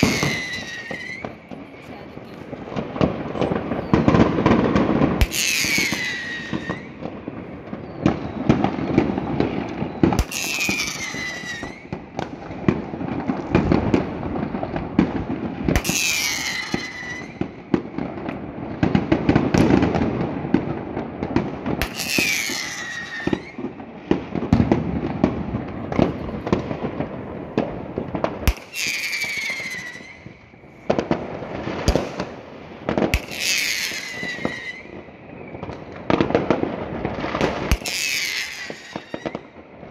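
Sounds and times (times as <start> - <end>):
falling firework whistle: 0.0 - 1.6, 3.2 - 12.2, 15.7 - 17.8, 21.8 - 25.2, 28.4 - 32.3, 32.9 - 36.6, 37.2 - 39.6
fireworks bangs and crackling: 0.0 - 39.9.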